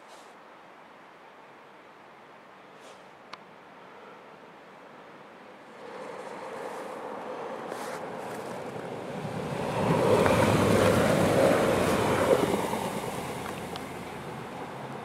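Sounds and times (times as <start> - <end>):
diesel train passing: 5.4 - 15.0.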